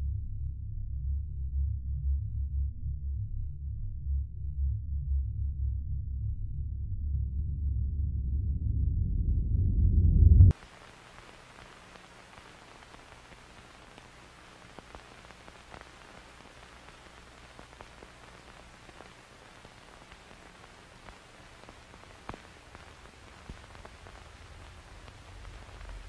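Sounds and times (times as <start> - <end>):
low hum: 0.0 - 10.6
small crackles and clicks: 10.5 - 26.0
static hiss: 10.5 - 26.0.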